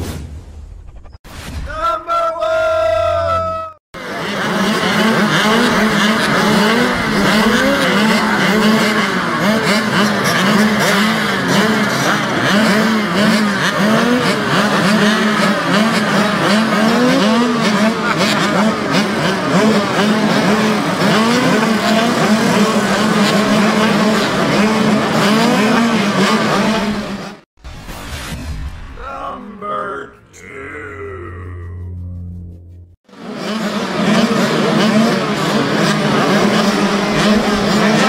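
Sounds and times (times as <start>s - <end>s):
motocross bikes revving: 4.0s - 27.5s, 33.1s - 38.0s.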